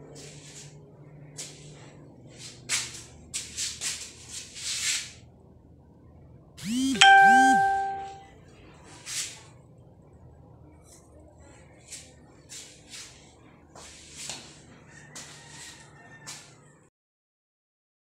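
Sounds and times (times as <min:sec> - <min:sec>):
electronic chime ding: 0:06.6 - 0:08.2.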